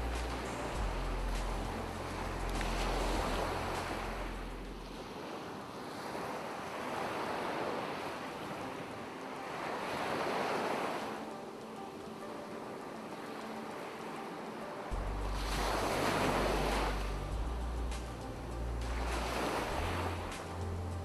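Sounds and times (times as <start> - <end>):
low steady drone: 0.0 - 5.0, 14.9 - 21.0
ocean surf on beach: 0.0 - 21.0.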